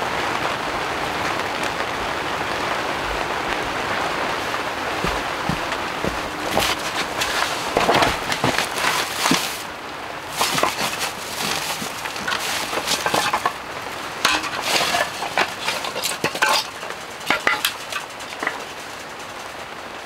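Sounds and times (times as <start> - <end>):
rain hissing: 0.0 - 20.0
rustling: 4.2 - 19.6
wooden clacks and knocks: 5.0 - 9.7, 10.3 - 13.6, 14.2 - 18.9.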